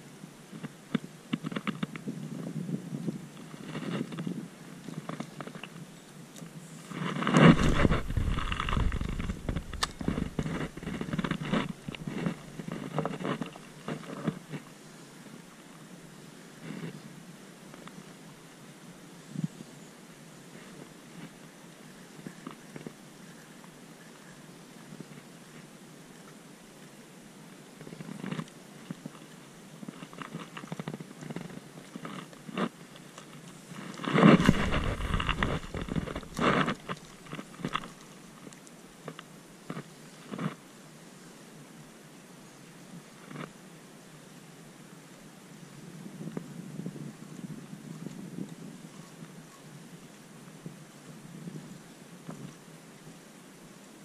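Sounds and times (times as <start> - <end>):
loud rumbling rustle: 6.7 - 14.6, 33.6 - 38.1
camera handling rustle: 7.0 - 14.4, 33.8 - 38.0.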